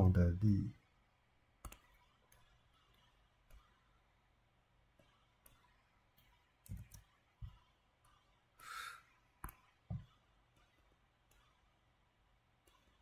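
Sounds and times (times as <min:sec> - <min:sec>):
short breath: 0:08.6 - 0:09.1
stylus tapping on glass screen: 0:09.4 - 0:10.1.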